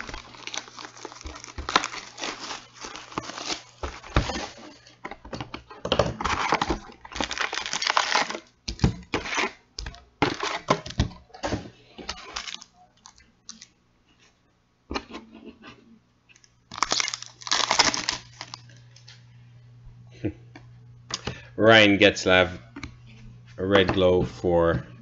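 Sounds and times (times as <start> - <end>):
packaging ripping and rustling: 0.0 - 4.8, 6.1 - 9.6, 10.2 - 11.1, 12.1 - 13.7, 16.7 - 18.8.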